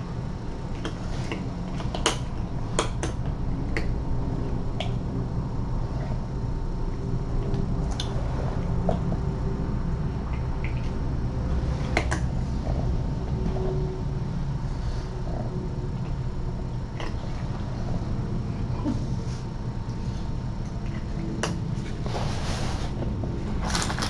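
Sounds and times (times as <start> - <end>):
steady low hum: 0.0 - 24.0
cat crunching dry kibble: 23.4 - 24.0.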